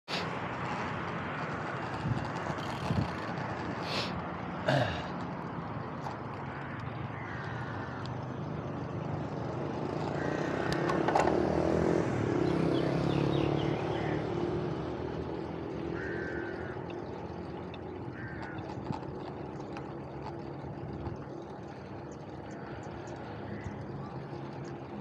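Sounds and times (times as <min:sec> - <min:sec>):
passing vehicle engine hum: 0:00.1 - 0:25.0
tyre noise on asphalt: 0:00.1 - 0:25.0
bike clicks and knocks: 0:00.2 - 0:07.1, 0:08.9 - 0:11.9, 0:14.5 - 0:22.4.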